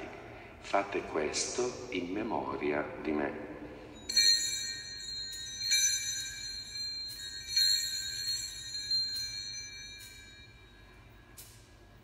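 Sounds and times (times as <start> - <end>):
small hand bells ringing: 3.9 - 12.0.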